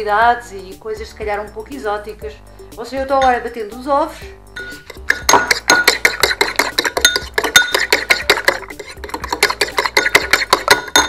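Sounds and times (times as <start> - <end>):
fork clinking against ceramic bowl: 4.6 - 11.0.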